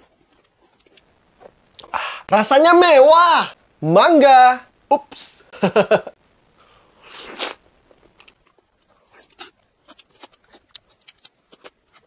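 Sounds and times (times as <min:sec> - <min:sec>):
wet biting and chewing: 0:09.1 - 0:12.0.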